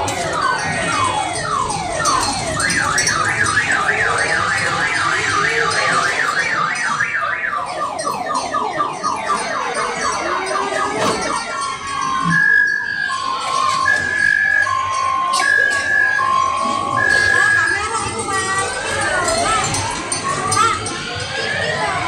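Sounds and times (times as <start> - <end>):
electronic siren sweeps and warble: 0.0 - 20.2.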